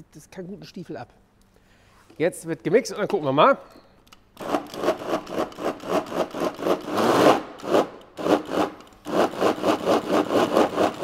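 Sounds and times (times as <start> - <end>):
electric chopper blending: 4.4 - 11.0.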